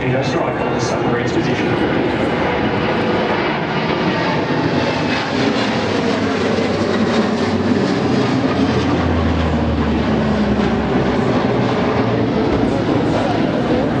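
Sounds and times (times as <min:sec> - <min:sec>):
aircraft flying past low overhead: 0:00.0 - 0:14.0
low propeller drone: 0:00.0 - 0:14.0.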